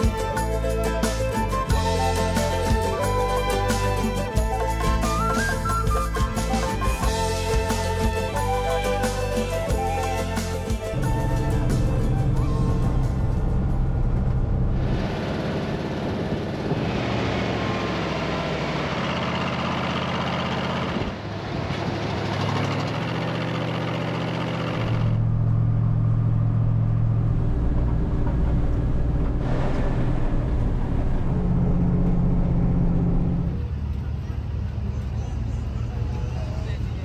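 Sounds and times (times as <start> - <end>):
truck engine running: 10.5 - 36.5.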